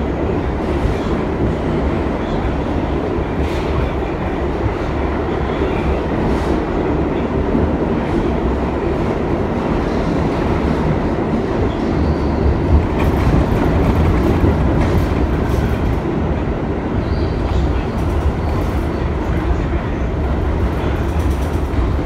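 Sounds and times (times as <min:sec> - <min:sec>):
subway train wheels rumbling: 0:00.0 - 0:22.0
clickety-clack of rail joints: 0:07.5 - 0:16.4, 0:17.2 - 0:22.0.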